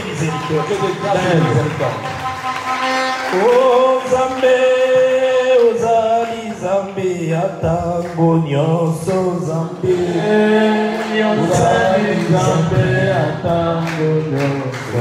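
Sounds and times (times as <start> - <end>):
man singing a slow worship song: 3.3 - 15.0.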